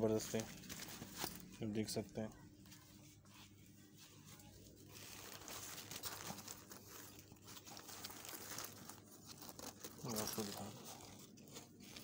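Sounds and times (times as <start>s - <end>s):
nylon backpack rustling: 4.8s - 12.0s.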